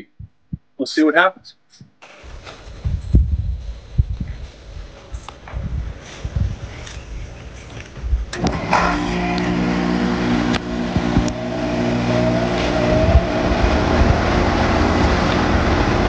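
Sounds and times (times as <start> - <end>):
fan air rushing: 2.0 - 16.0
heat pump humming: 8.3 - 16.0.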